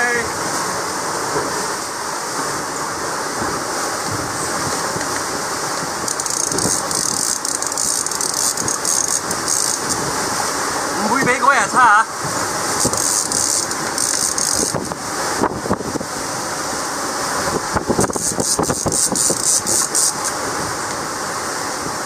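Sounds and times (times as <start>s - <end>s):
wind and sea water rushing: 0.0s - 22.0s
fishing reel ratchet clicking: 6.0s - 10.0s, 12.8s - 14.9s, 18.0s - 20.4s.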